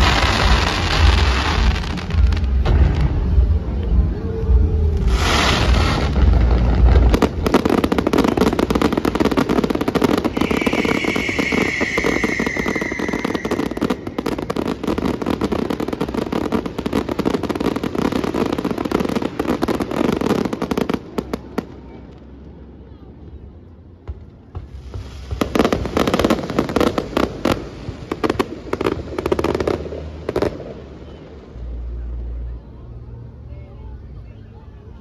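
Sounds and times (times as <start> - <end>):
rapid firework crackling: 0.0 - 3.7, 4.9 - 21.6, 24.5 - 31.1.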